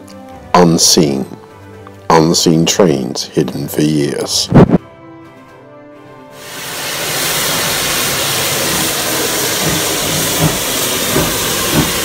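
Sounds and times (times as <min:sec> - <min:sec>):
steam locomotive hissing: 0:06.3 - 0:12.0.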